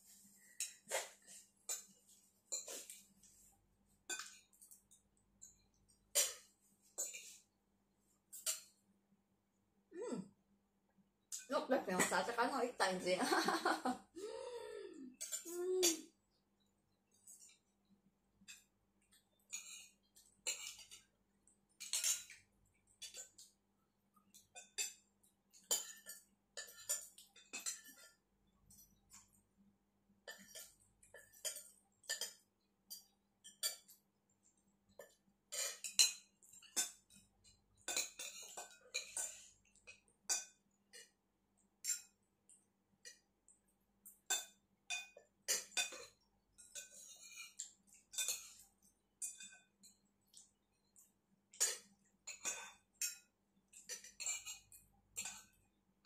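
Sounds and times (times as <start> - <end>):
cutlery scraping in ceramic bowl: 0.5 - 3.1, 4.1 - 4.7, 5.4 - 7.5, 19.4 - 21.1, 21.8 - 22.4, 24.3 - 29.3, 35.0 - 37.2, 37.8 - 41.1, 44.2 - 50.0, 51.5 - 55.6
spoons clinking on plates: 0.5 - 3.1, 4.0 - 7.5, 8.3 - 8.9, 18.4 - 23.6, 24.2 - 29.4, 30.2 - 34.0, 34.9 - 41.2, 41.8 - 43.2, 44.0 - 55.7.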